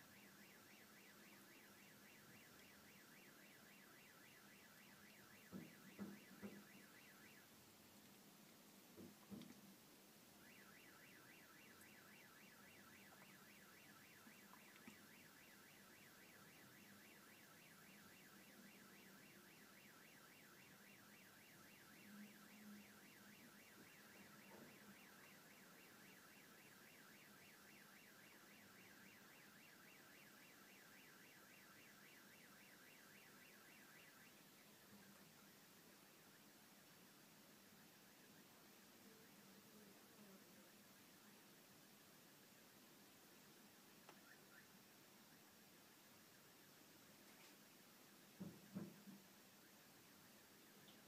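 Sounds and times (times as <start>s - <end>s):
car alarm warbling: 0.0s - 7.5s, 10.4s - 35.4s.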